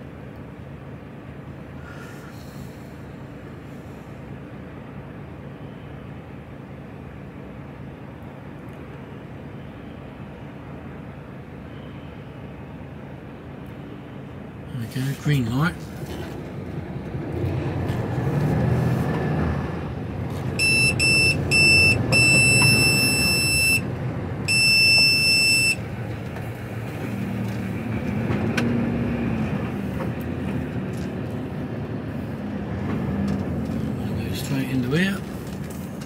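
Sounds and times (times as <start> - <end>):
diesel truck engine: 0.0 - 36.0
high electronic beeps: 20.6 - 23.8, 24.5 - 25.8.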